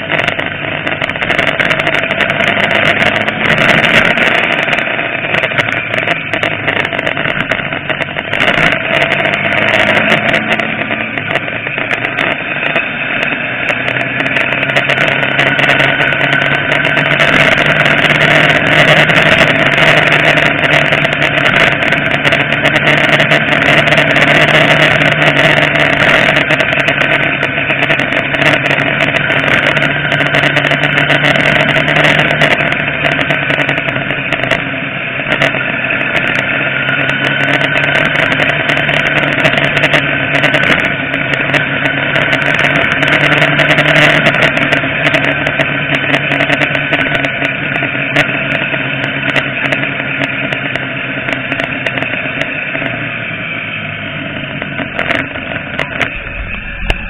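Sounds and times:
motorcycle engine running: 0.0 - 57.0
wind rush on microphone: 54.5 - 57.0.

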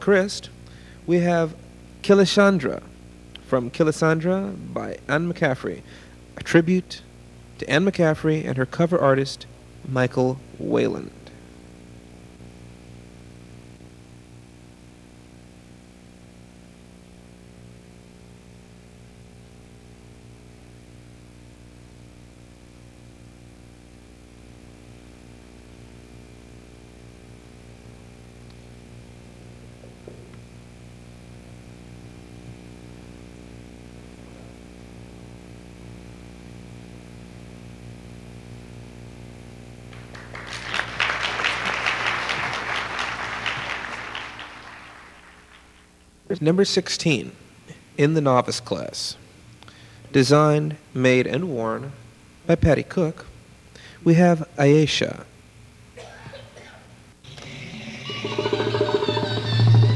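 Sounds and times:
electrical mains hum: 0.0 - 59.9
audience applause: 40.0 - 45.9.

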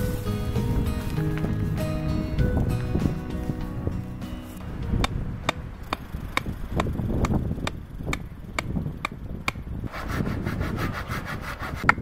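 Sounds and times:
background music with steady beat: 0.0 - 7.4
wind rumbling on microphone: 0.0 - 12.0
hand saw cutting a branch: 9.5 - 12.0.

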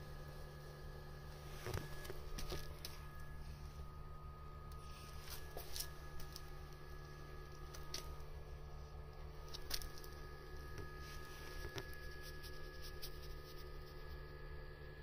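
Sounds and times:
low steady hum: 0.0 - 15.0
phone rustling against fur: 1.3 - 3.7, 4.8 - 14.2.

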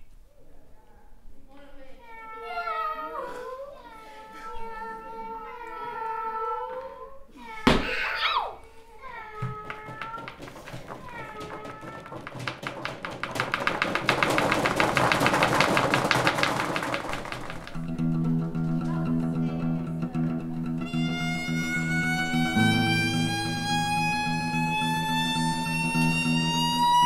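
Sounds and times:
rapid clicks and rattles: 9.5 - 17.9
rising high tone: 20.9 - 27.0.

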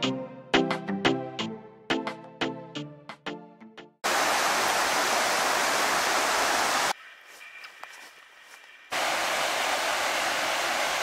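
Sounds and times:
river water rushing and splashing: 4.0 - 7.0, 8.9 - 11.0.

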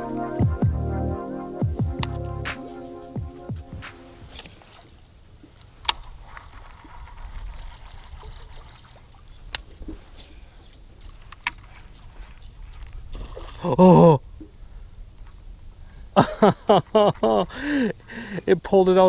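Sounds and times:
water lapping: 4.7 - 15.8.

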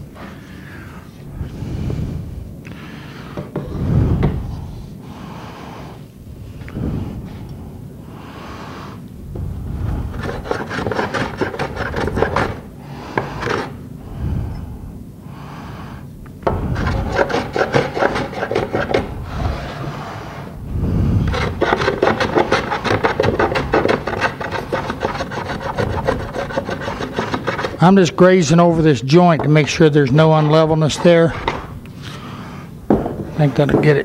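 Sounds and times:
hand plane rasping on wood: 10.1 - 13.8, 16.5 - 19.9, 21.3 - 31.7.

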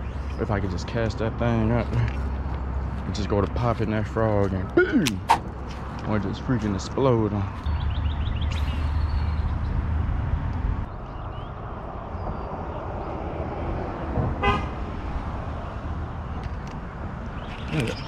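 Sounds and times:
car passing with low rumble: 5.3 - 17.7
car horn toot: 14.4 - 14.7.

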